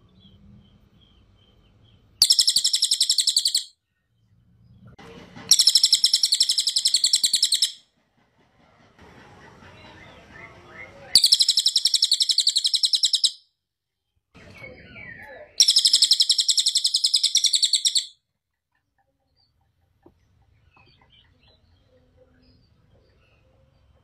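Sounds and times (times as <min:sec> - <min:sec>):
jay rattling calls: 0:02.2 - 0:03.7, 0:05.5 - 0:07.8
soft chattering bird notes: 0:02.2 - 0:03.7, 0:05.5 - 0:07.8, 0:11.1 - 0:13.4, 0:14.7 - 0:18.1.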